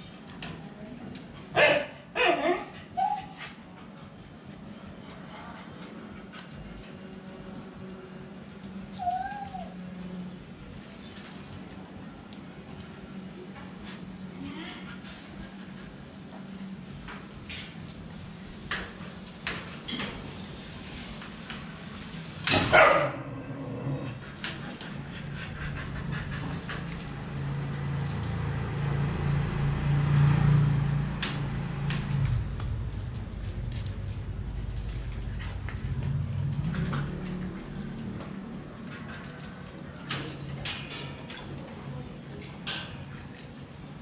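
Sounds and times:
dog barking: 1.6s - 2.7s, 22.7s - 23.3s
dog yelping: 1.6s - 3.7s
dog whining: 2.2s - 6.0s, 9.0s - 10.7s.

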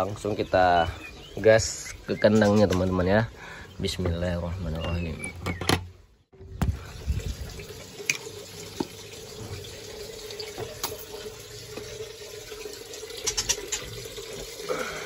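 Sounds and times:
tap water running: 6.6s - 15.0s.

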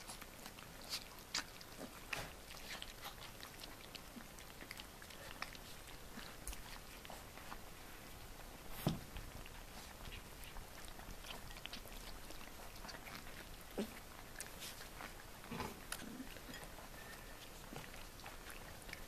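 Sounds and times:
puppies chewing and smacking: 0.0s - 19.0s.

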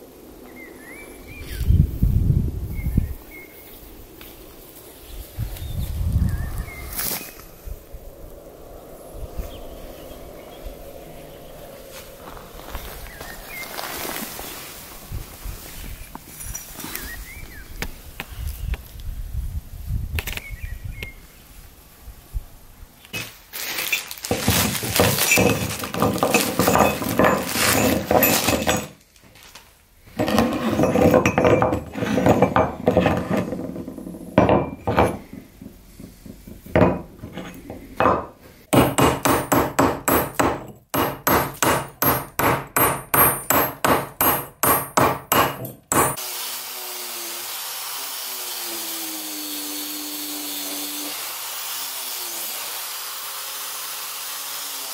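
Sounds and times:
regular metal strokes: 23.1s - 46.2s
metal spikes clanking on workbench: 23.2s - 29.0s, 30.2s - 35.3s.

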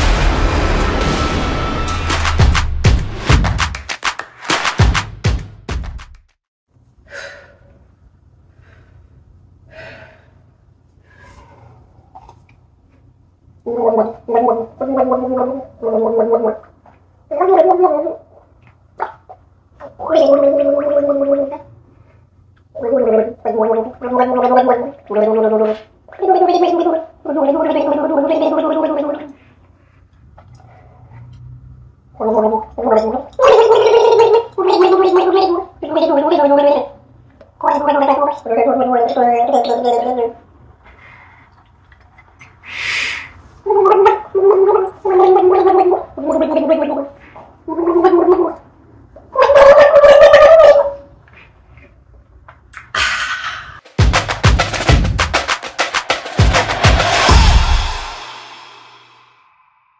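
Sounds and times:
woman's gargling vocal sounds: 19.9s - 21.7s, 32.2s - 37.0s, 37.6s - 40.4s
woman gargling a tune: 20.0s - 21.7s.

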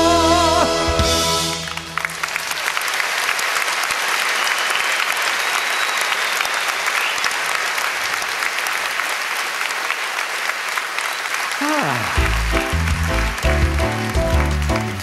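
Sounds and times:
band music: 0.0s - 2.6s, 11.6s - 15.0s
audience applauding: 0.7s - 15.0s.

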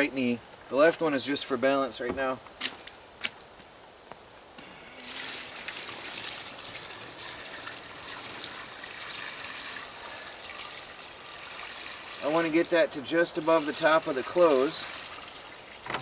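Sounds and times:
water pouring into tub: 5.0s - 15.9s.

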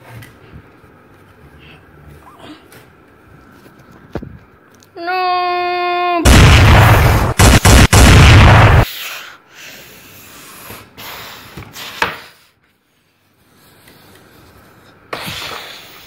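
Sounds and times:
distorted boom: 6.3s - 8.8s.

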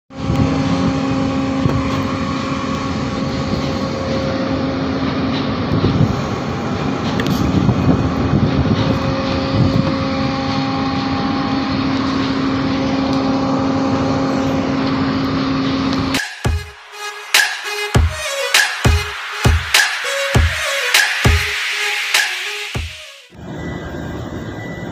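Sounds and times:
wind noise on microphone: 0.1s - 11.6s.

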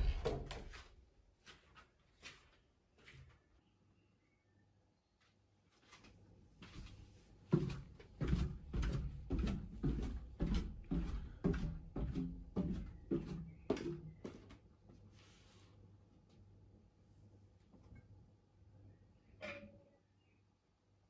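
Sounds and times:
flip-flop footsteps on wooden stairs: 6.6s - 14.6s.

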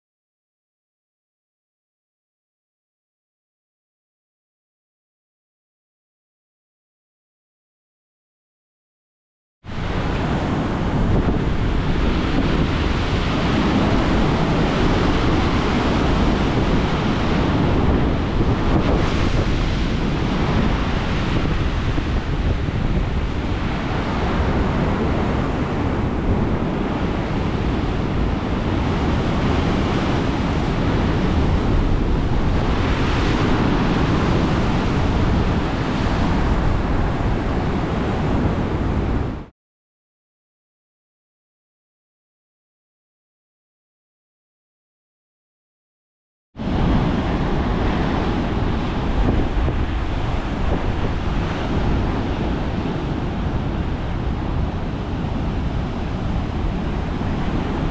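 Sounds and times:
ocean surf breaking: 9.7s - 39.5s, 46.6s - 57.9s
wind rumbling on microphone: 9.7s - 39.5s, 46.6s - 57.9s.

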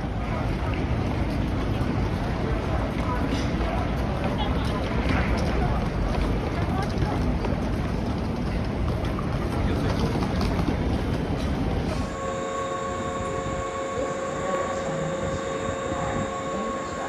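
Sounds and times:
train running rumble: 0.0s - 17.0s
high hums: 12.0s - 17.0s.

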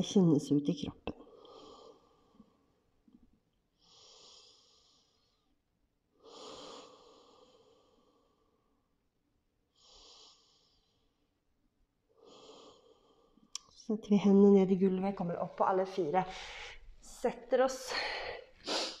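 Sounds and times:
woman breathing softly: 1.2s - 2.7s, 3.8s - 9.0s, 9.7s - 11.3s, 12.2s - 13.5s, 16.3s - 17.0s.

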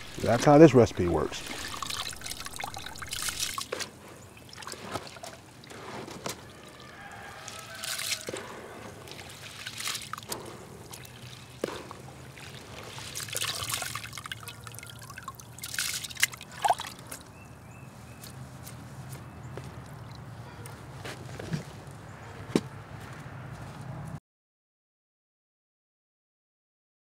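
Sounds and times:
wet grain splashing in water: 0.0s - 17.2s.

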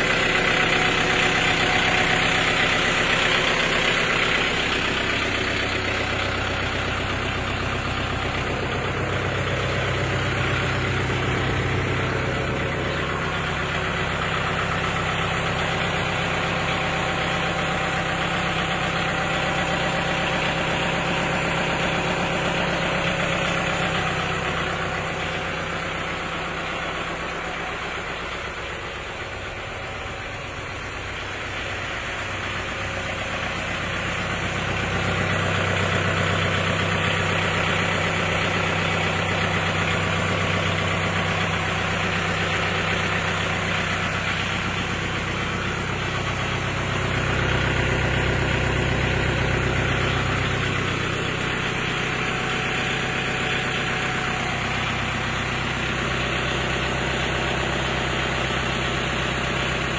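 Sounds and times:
tractor diesel engine idling: 0.0s - 59.9s.

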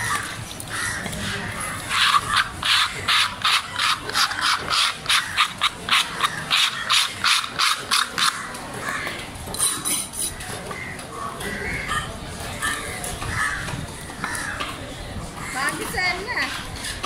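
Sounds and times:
knife scraping wooden chopping block: 1.8s - 8.4s.

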